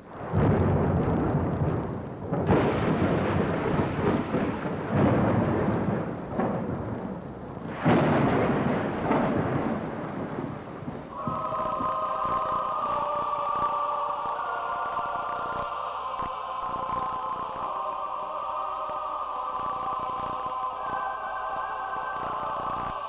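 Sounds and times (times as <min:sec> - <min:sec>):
steady rain: 0:00.0 - 0:23.0
rolling thunder: 0:00.1 - 0:14.3
held musical tone: 0:11.1 - 0:23.0.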